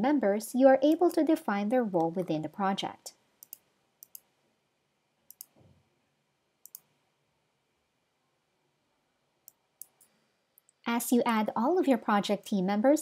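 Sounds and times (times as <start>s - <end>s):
computer mouse clicking: 3.4s - 4.3s, 5.3s - 5.6s, 6.6s - 6.9s, 9.4s - 10.8s.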